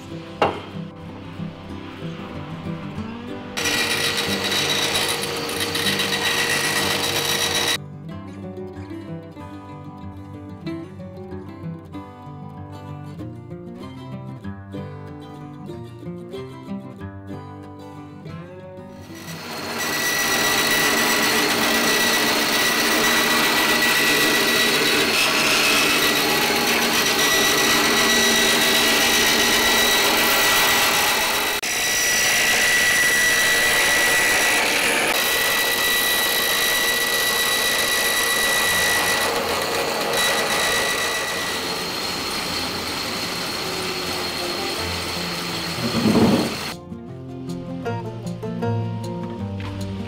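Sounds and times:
bandsaw cutting timber: 3.6 - 7.8, 19.0 - 46.8.

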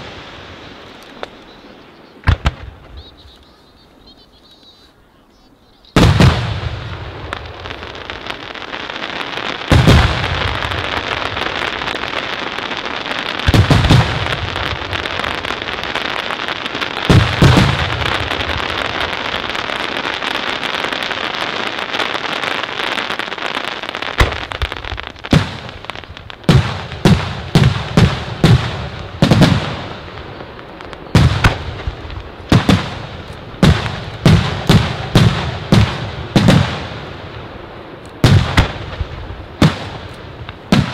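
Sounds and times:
firework booms: 0.0 - 3.4, 6.0 - 40.9
crackling hiss of fireworks: 0.0 - 40.9
sharp firework bangs: 2.2 - 3.3, 6.0 - 8.4, 9.0 - 20.8, 24.1 - 37.2, 38.2 - 40.9.

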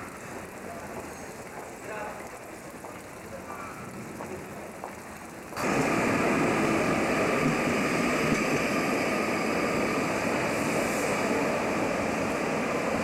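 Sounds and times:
tram wheels rolling on rails: 5.6 - 13.0.

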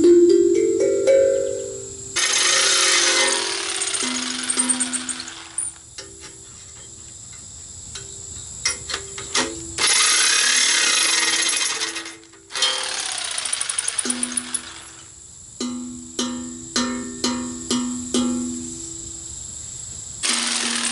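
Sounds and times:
jigsaw cutting thin steel: 2.2 - 5.7, 9.8 - 15.0, 20.2 - 20.9.

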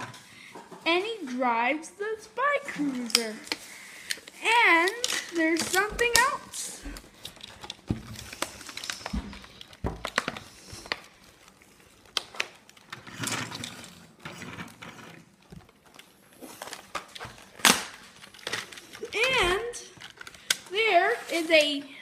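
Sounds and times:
packaging rustling: 2.8 - 21.8
plastic parts clicking: 3.0 - 14.4, 15.3 - 20.7.

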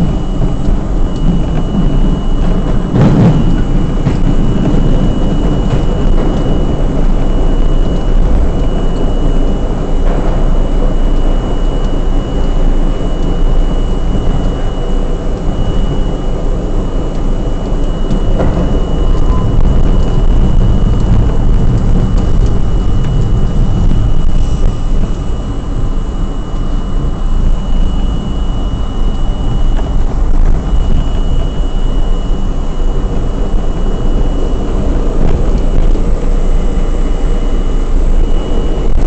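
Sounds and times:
subway car rumble: 0.0 - 39.0
thin high whine: 0.0 - 39.0.

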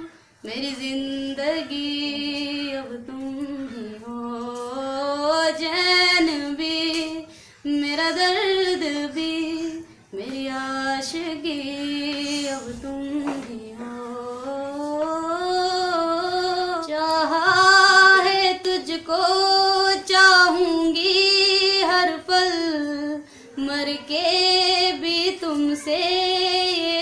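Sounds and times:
woman singing unaccompanied: 0.0 - 27.0.

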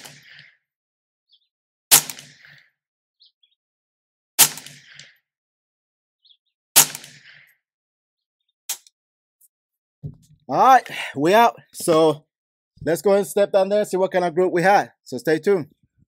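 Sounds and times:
rifle shots cracking: 1.9 - 2.5, 4.4 - 5.0, 6.8 - 7.3.

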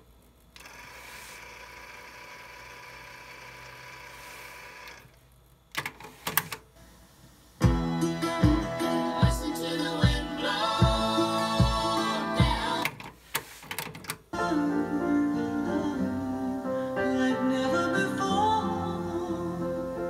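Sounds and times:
cassette tape winding whir: 0.0 - 7.4, 8.8 - 14.3
music from tape: 7.6 - 13.0, 14.4 - 20.0.

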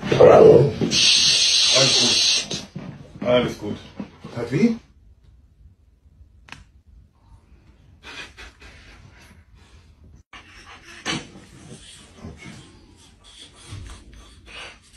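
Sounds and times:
dog panting: 8.0 - 14.9.

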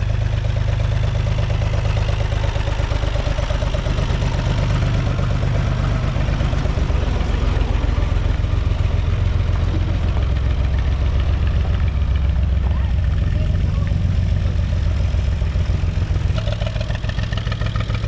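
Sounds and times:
tractor diesel engine idling: 0.0 - 18.0.

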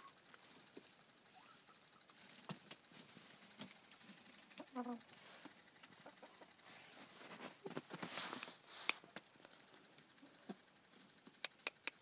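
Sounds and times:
footsteps crunching on snow: 6.7 - 9.0
sharp clicks: 11.2 - 12.0.

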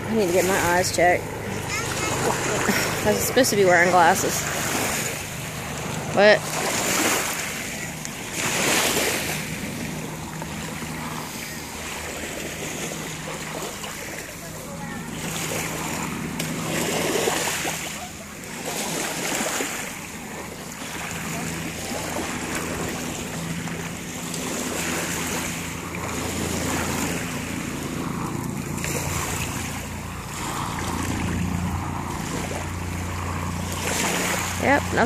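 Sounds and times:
distant engine hum: 0.0 - 35.0
small waves lapping: 0.0 - 35.0.

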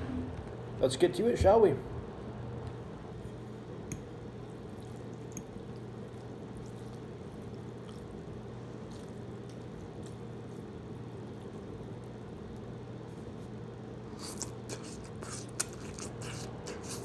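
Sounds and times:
steady low hum: 0.0 - 17.0
fork clicking against bowl: 3.9 - 4.1, 5.3 - 5.5.

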